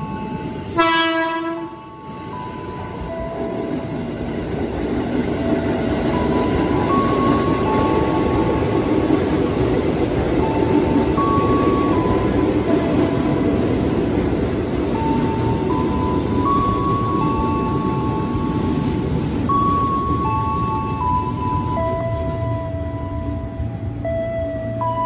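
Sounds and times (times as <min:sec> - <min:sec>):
train wheels and motors rumbling: 0:00.0 - 0:25.0
train horn blast: 0:00.7 - 0:01.9.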